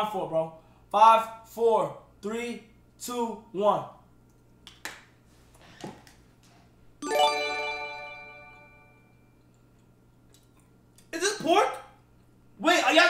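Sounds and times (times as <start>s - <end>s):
bright alert chime: 7.0s - 9.2s.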